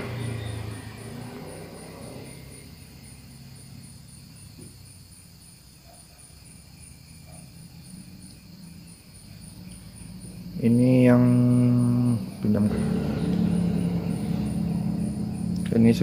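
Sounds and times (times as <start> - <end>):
insects chirping: 0.0 - 16.0
low steady hum: 8.8 - 16.0.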